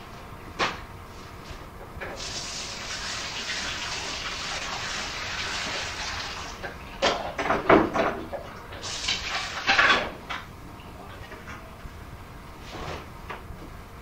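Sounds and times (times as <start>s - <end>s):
water running from tap: 2.2s - 6.6s, 8.8s - 9.8s.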